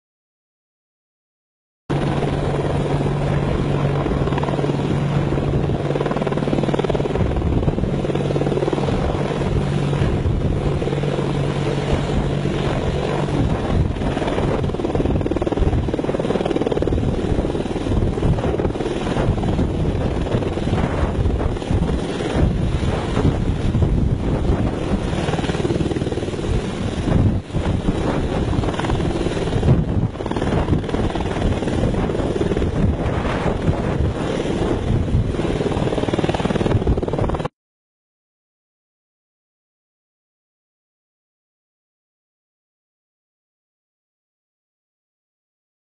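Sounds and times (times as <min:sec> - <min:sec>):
helicopter engines and rotor: 0:01.9 - 0:37.5.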